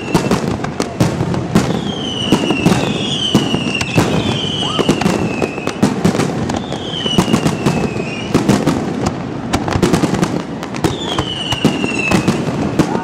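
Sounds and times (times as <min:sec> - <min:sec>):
falling firework whistle: 0:00.0 - 0:00.5, 0:01.6 - 0:08.5, 0:10.8 - 0:13.0
fireworks bangs and crackle: 0:00.0 - 0:13.0.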